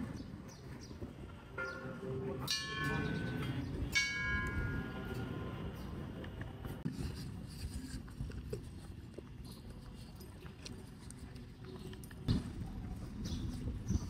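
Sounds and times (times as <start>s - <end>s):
metal temple bell ringing: 1.6s - 5.8s.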